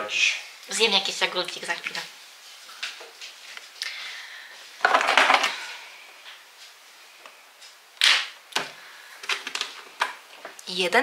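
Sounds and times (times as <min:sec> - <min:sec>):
containers clattering in a drawer: 0:04.8 - 0:05.6.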